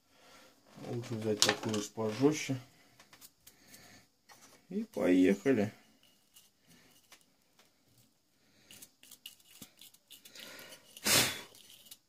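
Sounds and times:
brush scratching fan: 8.5 - 12.0
loud breathy burst: 10.4 - 11.5.

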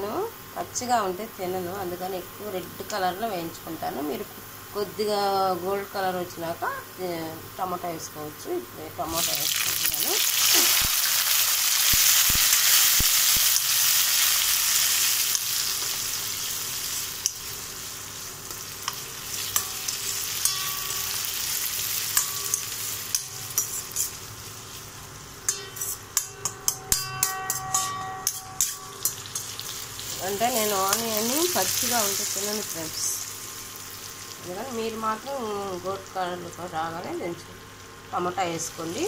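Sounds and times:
tomatoes sizzling in hot oil: 0.0 - 39.0
metal spatula scraping a pan: 18.8 - 24.8, 25.5 - 30.2.

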